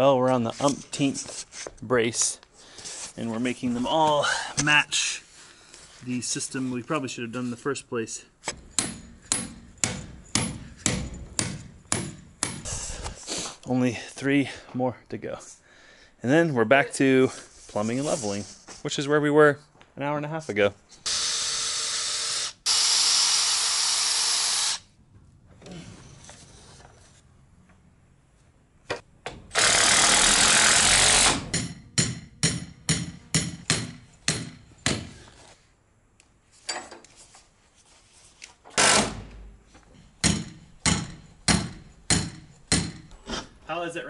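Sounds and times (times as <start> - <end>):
cordless drill driving screws: 21.0 - 24.8, 29.5 - 31.4, 38.7 - 39.2.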